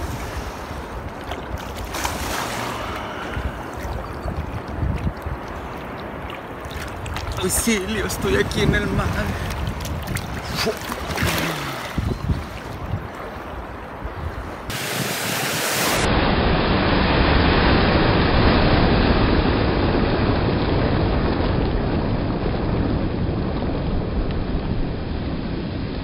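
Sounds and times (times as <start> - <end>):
choppy water splashing: 0.0 - 16.1
wind buffeting microphone: 0.0 - 26.0.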